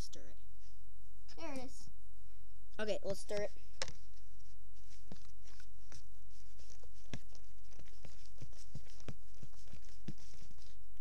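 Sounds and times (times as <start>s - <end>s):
steady low hum: 0.0s - 11.0s
fork stirring slime in a bowl: 4.8s - 10.7s.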